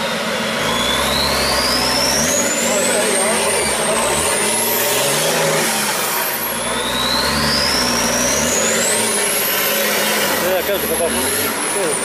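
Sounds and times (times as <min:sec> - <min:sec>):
buggy engine revving: 0:00.0 - 0:12.0.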